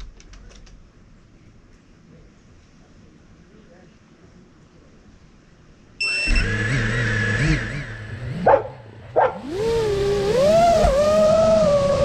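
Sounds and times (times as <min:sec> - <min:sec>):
drone motors whining: 0:06.0 - 0:12.0.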